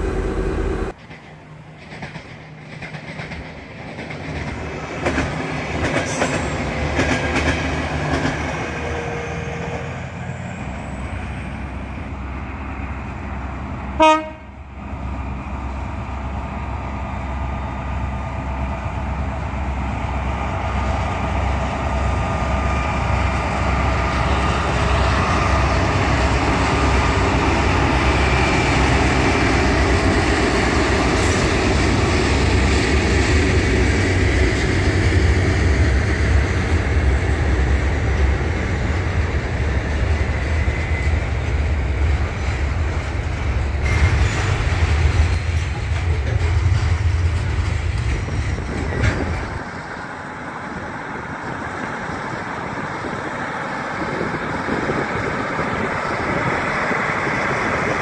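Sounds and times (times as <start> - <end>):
train rumbling: 0.0 - 58.0
train horn toot: 14.0 - 14.6.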